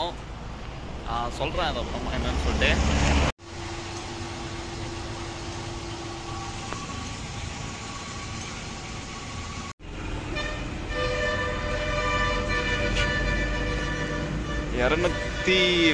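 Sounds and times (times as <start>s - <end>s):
vehicle engine and road noise: 0.0s - 15.9s
held horn-like tone: 3.4s - 15.9s
steady tones: 3.4s - 15.9s.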